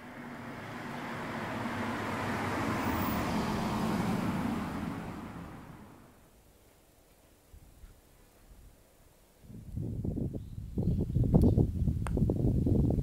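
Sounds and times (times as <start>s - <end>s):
car passing by: 0.0s - 6.3s.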